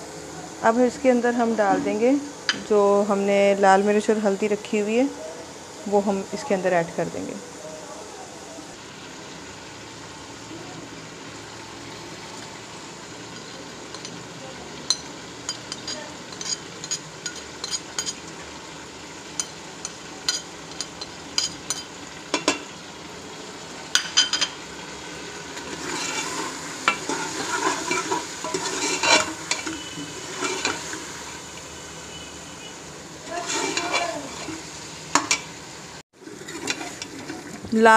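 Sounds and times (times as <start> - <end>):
frying sizzle: 0.0 - 37.9
spoon stirring in metal pot: 14.8 - 18.2, 19.4 - 22.6, 25.7 - 31.0, 33.4 - 34.6
metal spoon scraping a plate: 15.5 - 18.2, 25.8 - 30.8, 33.5 - 34.6.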